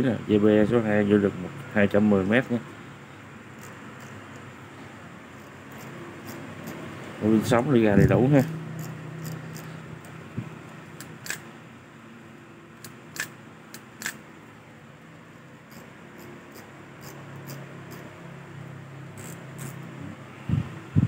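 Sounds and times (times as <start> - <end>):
steady low hum: 0.0 - 21.0
faint evenly spaced ticks: 5.4 - 6.8, 8.4 - 9.7.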